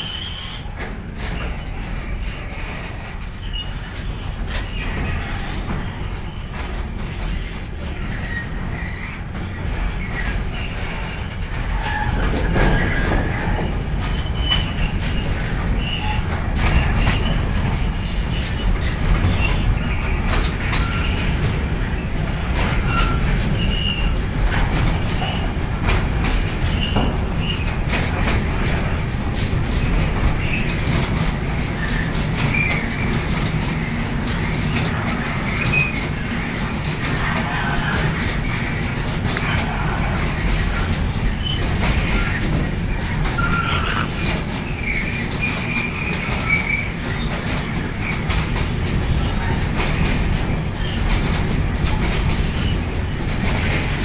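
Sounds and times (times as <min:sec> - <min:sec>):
high wheel squeals: 0:00.0 - 0:00.8, 0:18.0 - 0:24.2, 0:37.0 - 0:47.3
freight train wagons rumbling: 0:00.0 - 0:54.0.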